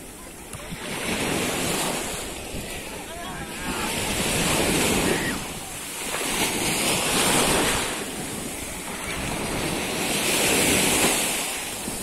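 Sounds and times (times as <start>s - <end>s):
sea waves breaking on sand: 0.0s - 12.0s
wind rumbling on microphone: 0.0s - 12.0s.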